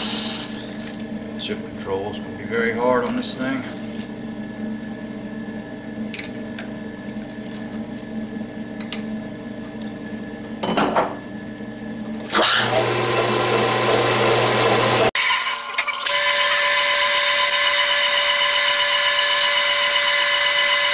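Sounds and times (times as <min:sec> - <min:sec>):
lathe chuck whirring: 0:12.3 - 0:15.1
metal lathe motor hum: 0:12.4 - 0:15.1.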